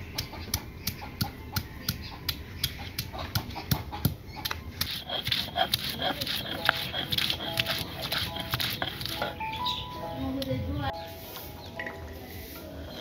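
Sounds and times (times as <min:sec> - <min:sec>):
stone pestle knocking and scraping: 0:00.2 - 0:09.4.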